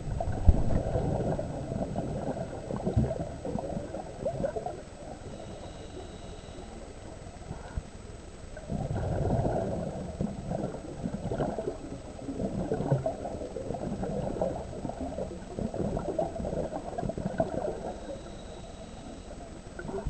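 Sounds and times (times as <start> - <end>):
diver's regulator bubbles: 0.0 - 20.0.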